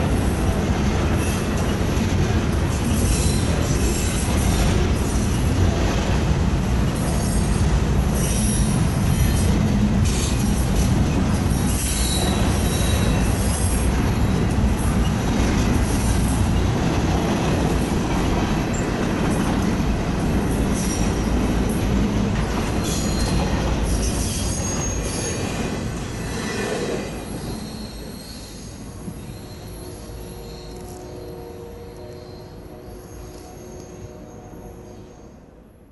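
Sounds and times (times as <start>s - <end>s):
train wheels rumbling on rail: 0.0s - 35.1s
high-pitched wheel squeals: 11.6s - 14.4s, 27.2s - 34.0s.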